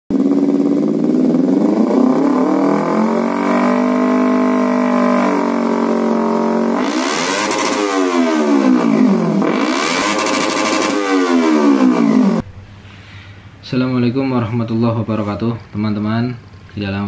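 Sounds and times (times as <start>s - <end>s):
motorcycle engine revving: 0.1s - 12.5s.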